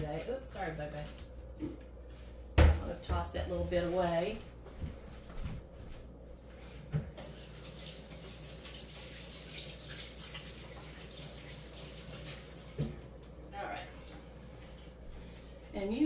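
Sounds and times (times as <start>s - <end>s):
kitchen tap running: 7.0s - 13.1s.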